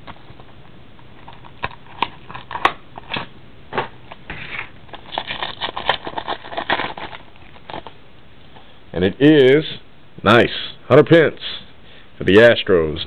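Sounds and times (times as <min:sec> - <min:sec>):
wrapper tearing and crinkling: 0:04.5 - 0:08.0.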